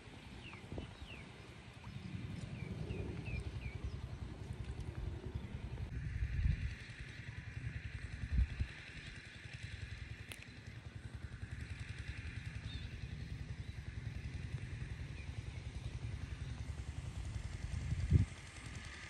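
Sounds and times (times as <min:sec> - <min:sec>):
small engine running: 0:00.0 - 0:19.0.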